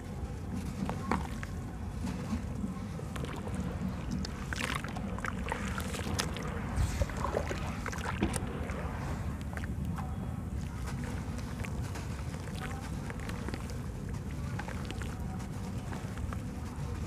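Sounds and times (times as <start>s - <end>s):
steady low rumble: 0.0s - 17.0s
wet mud squishing and sloshing: 0.0s - 17.0s
small crackles: 9.3s - 17.0s.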